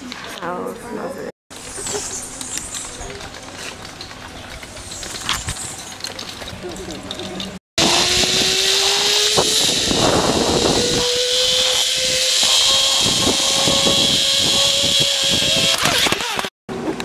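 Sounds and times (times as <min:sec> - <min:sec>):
zipline trolley hissing on cable: 0:07.8 - 0:16.4
rising whine: 0:07.8 - 0:16.5.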